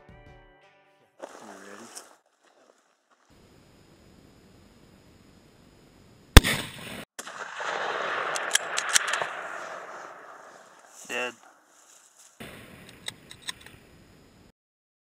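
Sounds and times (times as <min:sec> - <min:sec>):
rifle shot: 0:06.4 - 0:11.2
sharp clicks: 0:08.2 - 0:10.9, 0:12.8 - 0:13.8.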